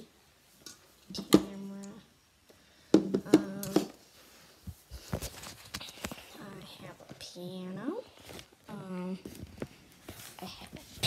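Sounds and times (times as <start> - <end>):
girl speaking: 1.1 - 2.1, 3.2 - 3.9, 6.2 - 9.3, 10.4 - 11.0.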